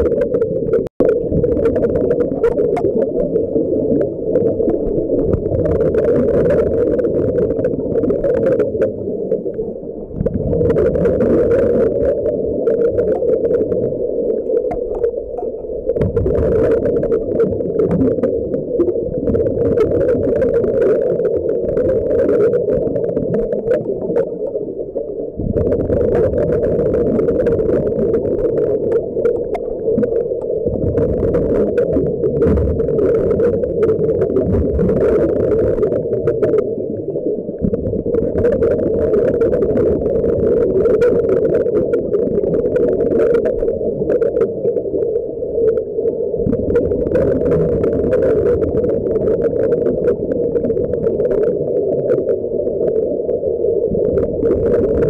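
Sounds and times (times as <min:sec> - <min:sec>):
muffled underwater hum: 0:00.0 - 0:55.0
scuba exhaust bubbles: 0:00.0 - 0:55.0.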